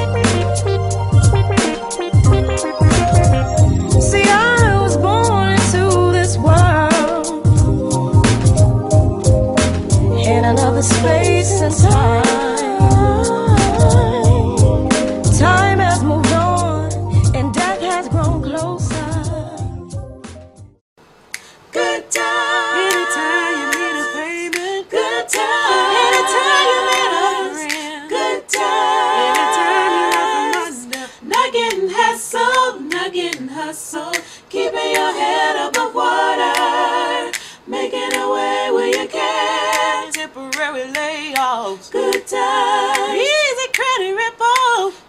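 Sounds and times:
vocal group singing in harmony: 0:00.0 - 0:19.7, 0:21.4 - 0:45.0
finger snaps: 0:21.3 - 0:21.6, 0:22.9 - 0:23.1, 0:23.7 - 0:23.9, 0:24.5 - 0:24.7, 0:27.7 - 0:27.9, 0:30.1 - 0:31.8, 0:32.5 - 0:33.5, 0:34.1 - 0:35.1, 0:37.3 - 0:38.3, 0:39.7 - 0:42.3, 0:43.7 - 0:44.0.

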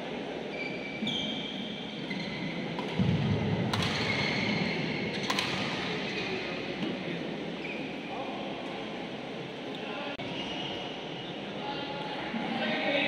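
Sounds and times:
racket striking shuttlecock: 0:02.8 - 0:04.3, 0:05.2 - 0:05.9.

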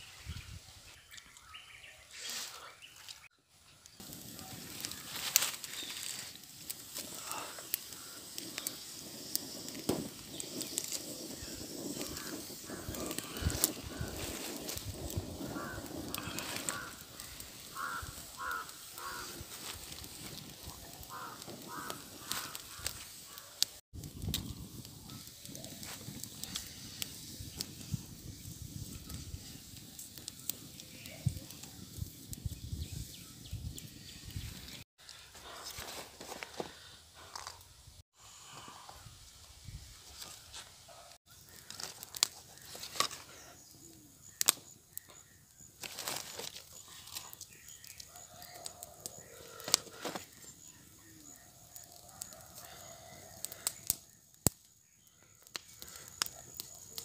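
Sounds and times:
bird calling: 0:15.4 - 0:19.5.

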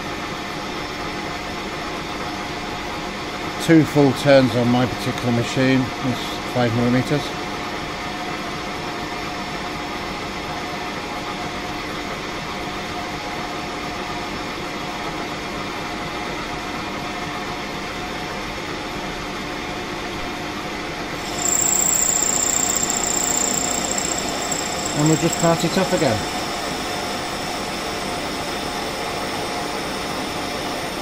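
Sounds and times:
high-pitched cutting whine: 0:21.2 - 0:31.0
lathe machine hum: 0:21.2 - 0:31.0.

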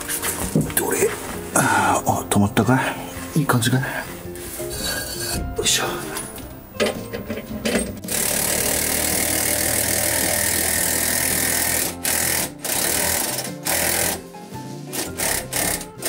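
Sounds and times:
impact driver buzz-hammering: 0:08.0 - 0:14.2, 0:15.0 - 0:16.0.

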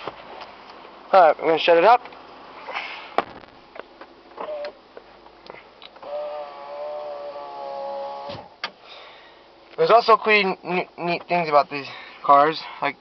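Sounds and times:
electric power window motor whining: 0:06.0 - 0:08.5.

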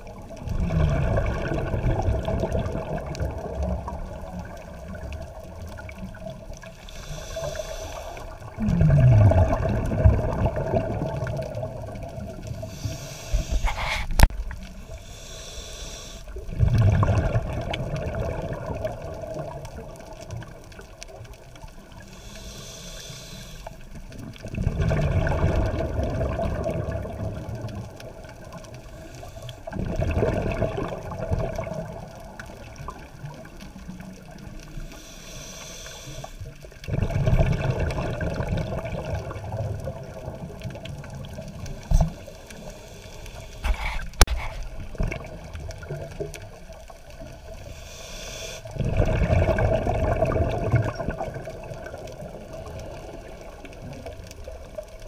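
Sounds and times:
exhaust bubbles gurgling: 0:00.0 - 0:14.9, 0:16.3 - 0:22.1, 0:23.9 - 0:35.0, 0:36.4 - 0:42.7, 0:43.6 - 0:47.7, 0:48.6 - 0:55.0
diver breathing through regulator: 0:06.8 - 0:08.5, 0:12.6 - 0:16.4, 0:22.0 - 0:23.8, 0:34.8 - 0:36.5, 0:42.1 - 0:44.7, 0:47.6 - 0:48.8.

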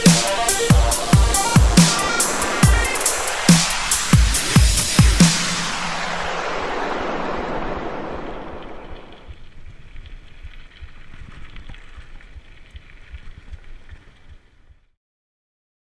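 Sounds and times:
electronic music: 0:00.0 - 0:09.3
falling noise sweep: 0:00.0 - 0:09.7
wind noise on microphone: 0:00.7 - 0:14.9.

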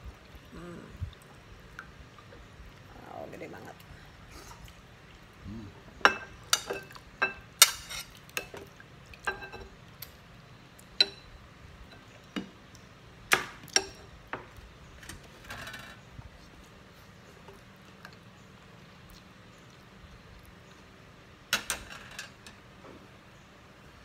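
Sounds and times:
cutlery clinking on ceramic plates: 0:06.0 - 0:08.6, 0:09.3 - 0:09.7
cutlery scraping a plate: 0:07.6 - 0:08.5.

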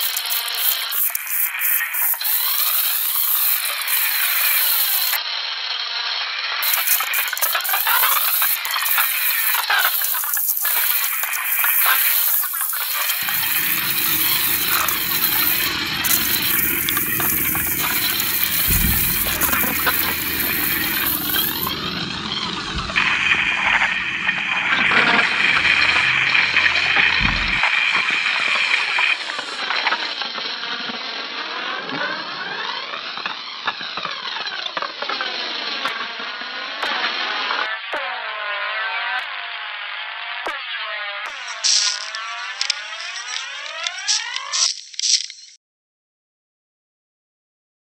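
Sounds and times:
dense crackling sizzling: 0:00.0 - 0:31.4, 0:41.2 - 0:45.6
electronic hissing noise with sweeps: 0:00.0 - 0:33.8, 0:40.8 - 0:45.6
low rumble: 0:13.2 - 0:28.3.

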